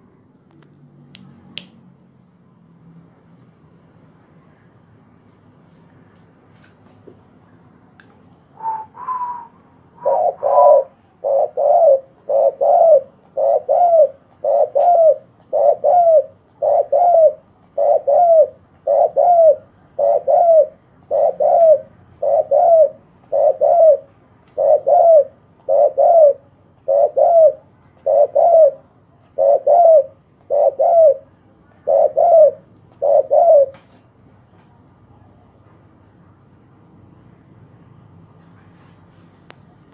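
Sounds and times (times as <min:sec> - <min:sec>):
dove cooing: 0:08.6 - 0:33.9.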